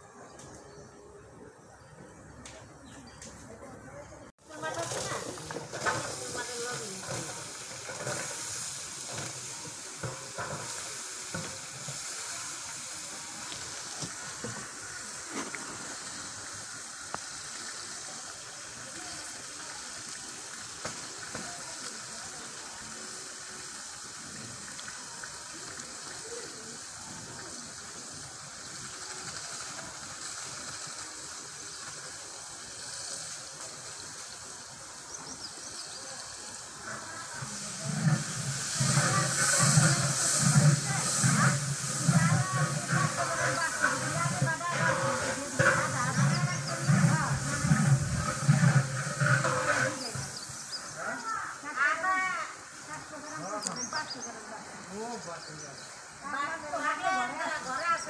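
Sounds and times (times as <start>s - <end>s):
food sizzling in oil: 4.4s - 58.0s
ladle stirring in pot: 4.6s - 13.1s, 37.3s - 50.9s.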